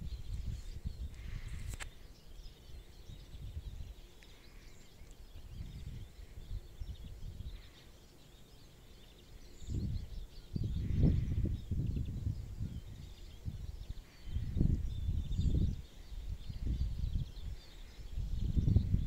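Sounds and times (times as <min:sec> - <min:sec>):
wind buffeting microphone: 0:00.0 - 0:04.1, 0:05.2 - 0:07.8, 0:09.5 - 0:19.0
small birds chirping: 0:00.0 - 0:19.0
sharp click: 0:01.6 - 0:02.0.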